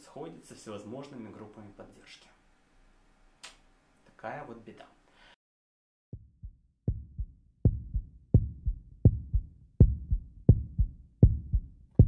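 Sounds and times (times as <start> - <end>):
heartbeat thumps: 6.2 - 12.0.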